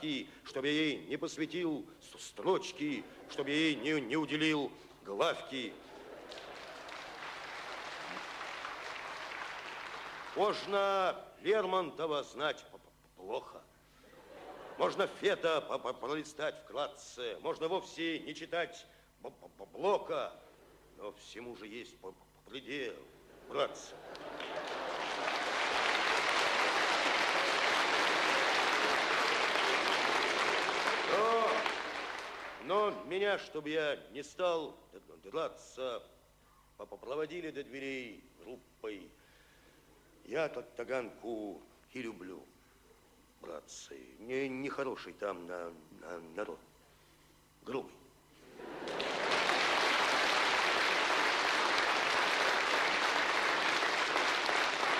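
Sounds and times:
large audience applauding: 0:06.2 - 0:10.7, 0:24.0 - 0:32.7, 0:48.6 - 0:54.9.

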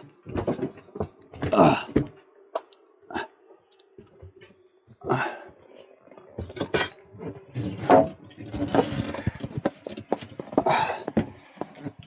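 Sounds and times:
boiler knocking and scraping: 0:06.2 - 0:12.0.

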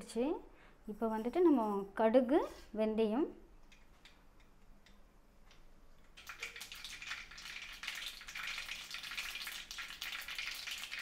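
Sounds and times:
seeds crackling in hot oil: 0:06.1 - 0:11.0.

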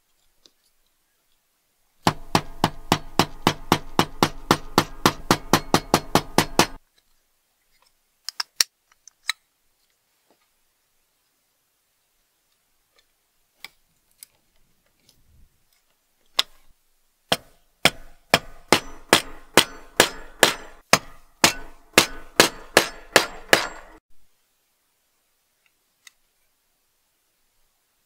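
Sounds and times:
hammer striking steel punch: 0:02.0 - 0:06.8, 0:17.3 - 0:24.0.

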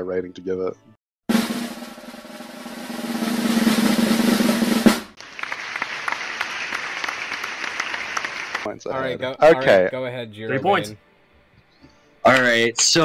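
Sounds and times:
snare drum roll ending in hit: 0:01.3 - 0:05.2
recorded applause: 0:05.2 - 0:08.7.

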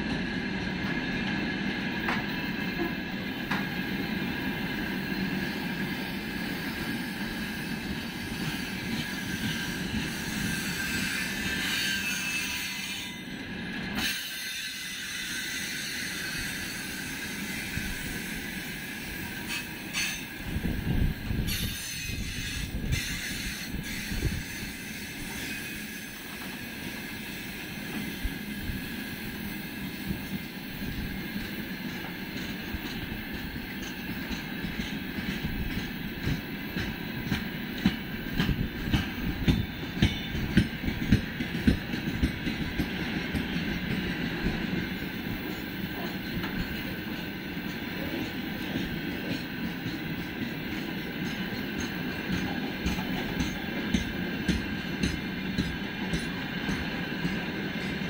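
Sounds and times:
train wheels rumbling on rails: 0:00.0 - 0:58.0
high wheel squeal: 0:07.6 - 0:13.4.

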